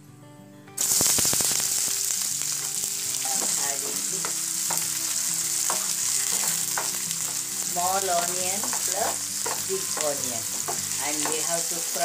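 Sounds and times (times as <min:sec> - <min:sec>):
onions sizzling in hot oil: 0:00.8 - 0:12.0
stirring knocks and scrapes in pan: 0:03.3 - 0:11.6.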